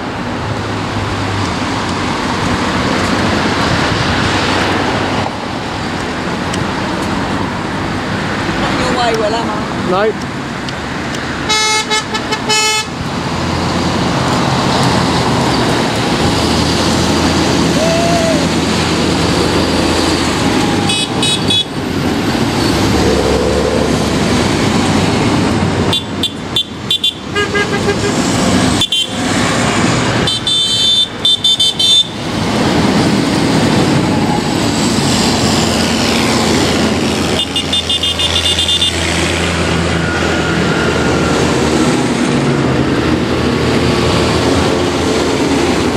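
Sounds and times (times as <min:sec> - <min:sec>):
tractor diesel engines droning: 0:00.0 - 0:45.9
horns tooting: 0:11.4 - 0:13.0, 0:20.8 - 0:21.9, 0:25.9 - 0:29.4, 0:30.2 - 0:32.3, 0:37.3 - 0:39.3.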